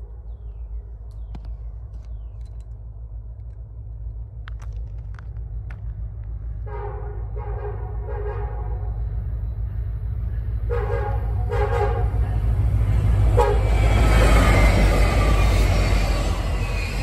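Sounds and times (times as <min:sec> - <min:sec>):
diesel locomotives rumbling: 0:00.0 - 0:17.0
train wheel noise: 0:02.0 - 0:17.0
locomotive air horn blasts: 0:06.6 - 0:08.9, 0:10.7 - 0:12.2, 0:13.3 - 0:13.8.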